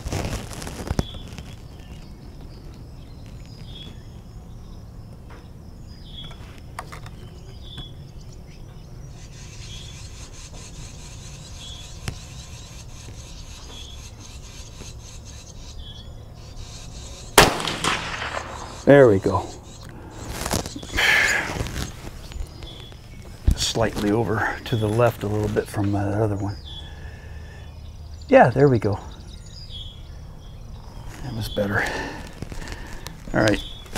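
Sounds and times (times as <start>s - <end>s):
insect chirping: 0.0s - 33.9s
rifle shot: 17.4s - 18.9s
high insect buzz: 18.4s - 24.8s.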